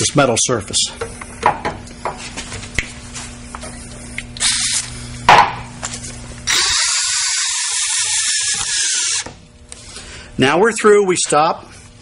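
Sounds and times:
power drill humming: 4.4 - 4.9, 6.4 - 9.4
drill clicks: 6.5 - 9.3.

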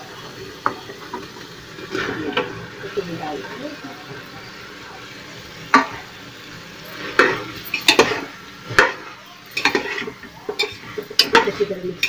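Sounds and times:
light sizzle: 0.0 - 12.0
spoon knocking and scraping pot: 7.1 - 9.0, 9.6 - 11.7.

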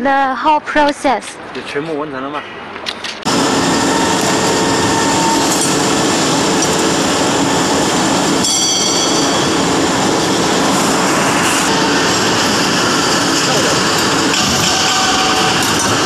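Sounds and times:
high-pitched whine: 3.3 - 16.0.

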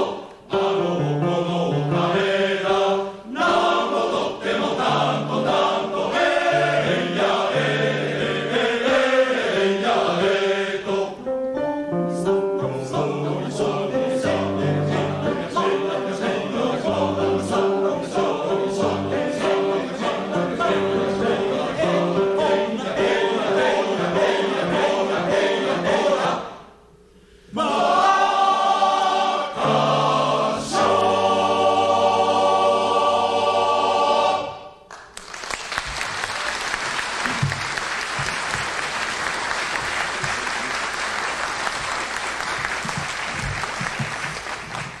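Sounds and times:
men's chorus singing unaccompanied: 0.0 - 11.3, 12.8 - 26.6, 27.5 - 34.7
audience applause: 34.9 - 45.0.

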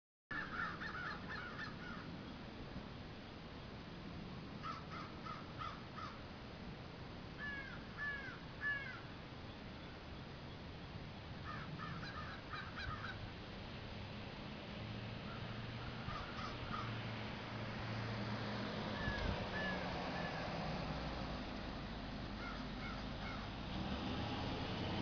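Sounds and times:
crows cawing: 0.3 - 2.1, 4.6 - 6.2, 7.4 - 9.1, 11.4 - 13.2, 15.3 - 17.0, 19.0 - 20.4, 22.4 - 23.5.

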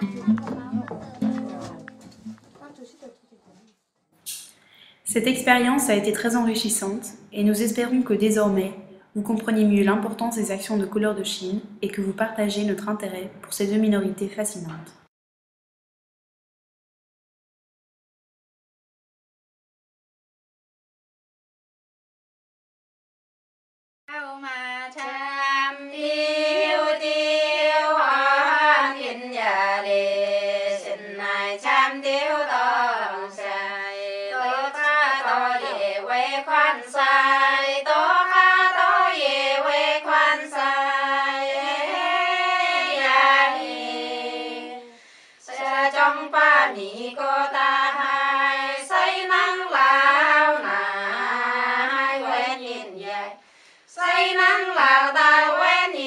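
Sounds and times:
voices singing high: 34.5 - 44.8.

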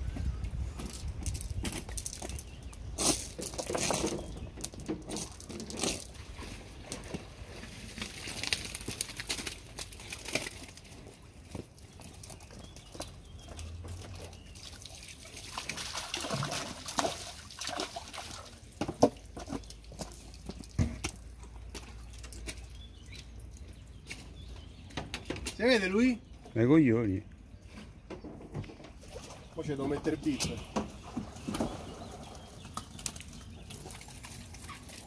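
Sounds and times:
water splashing and dripping: 0.7 - 24.6, 29.0 - 35.0
fish thrashing in water: 5.0 - 22.7, 30.9 - 35.0.

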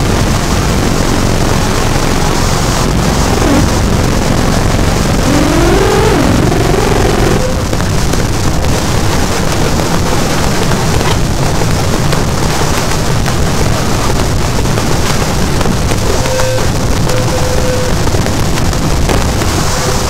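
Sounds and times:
harsh distorted noise music: 3.0 - 18.4.

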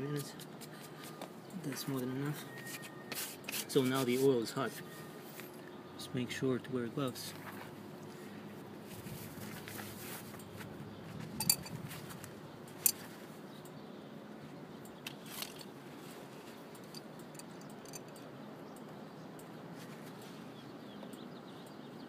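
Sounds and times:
metallic clicks of hand tools: 16.8 - 18.3.

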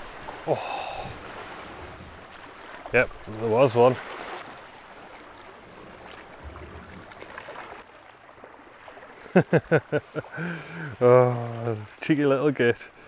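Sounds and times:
water lapping against rocks: 0.0 - 12.0.

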